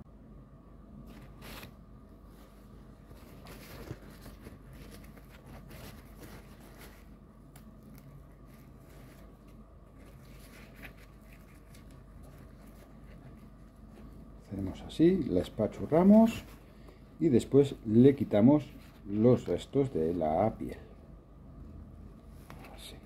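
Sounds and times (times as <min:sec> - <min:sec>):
paper towel rustling and crinkling: 0:01.0 - 0:16.8.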